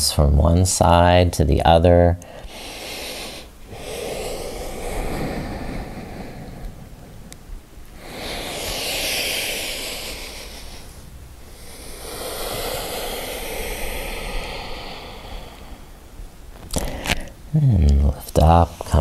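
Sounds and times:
person breathing slowly: 2.2s - 17.4s.

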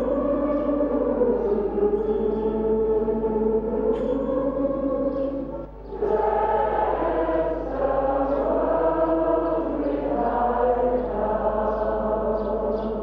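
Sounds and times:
choir singing slow chant: 0.0s - 13.0s.

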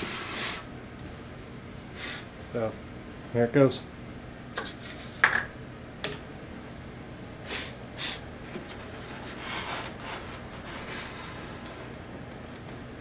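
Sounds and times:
foam board brushing and rubbing: 0.0s - 0.7s, 8.5s - 12.0s.

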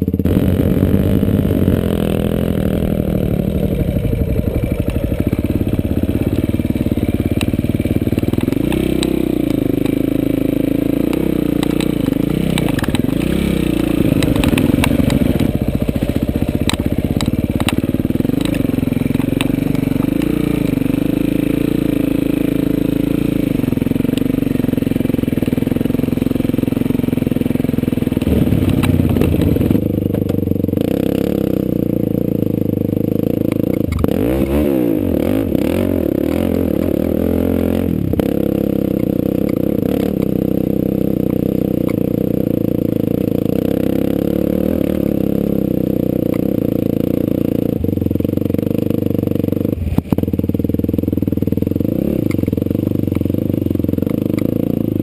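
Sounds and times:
quad bike engine revving: 0.0s - 55.0s
sharp clicks: 11.1s - 20.5s.

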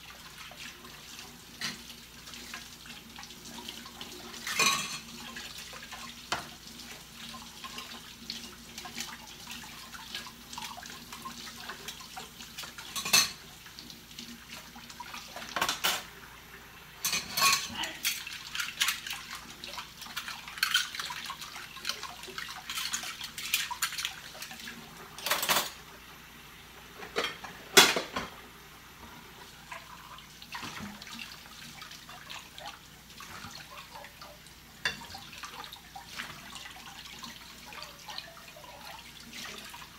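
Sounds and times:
running water: 0.0s - 39.9s
dishes clinking in a metal sink: 1.6s - 1.9s, 4.3s - 5.5s, 6.3s - 6.6s, 11.6s - 13.5s, 15.3s - 16.1s, 17.0s - 19.3s, 25.2s - 25.8s, 27.0s - 28.4s, 34.8s - 36.4s.

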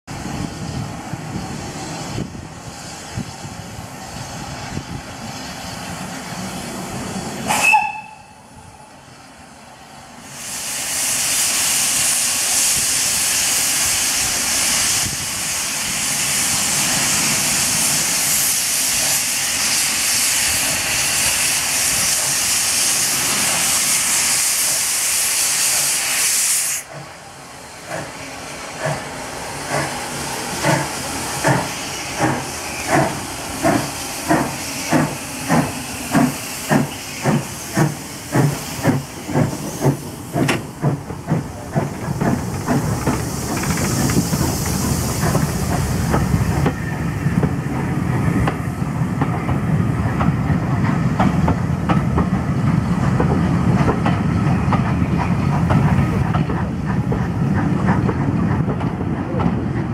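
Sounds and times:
steam hissing: 0.1s - 58.7s
steam whistle blast: 7.5s - 8.5s
steam engine beats: 27.8s - 48.6s.

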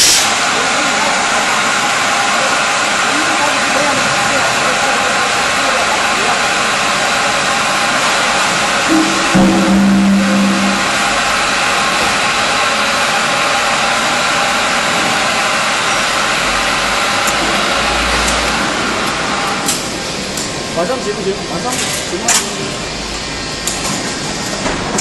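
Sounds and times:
short low hum: 8.9s - 11.4s.

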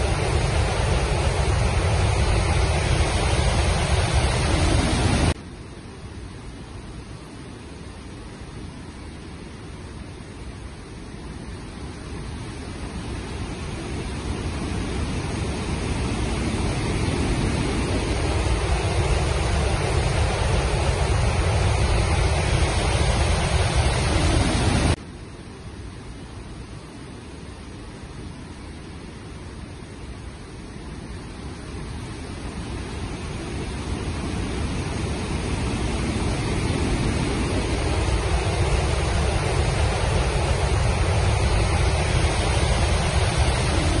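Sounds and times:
water rushing through spillway: 0.0s - 44.0s.

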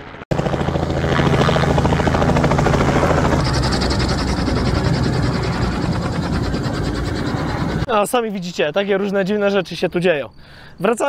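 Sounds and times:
low engine drone: 0.0s - 7.9s
helicopter rotor chop: 0.0s - 8.0s.

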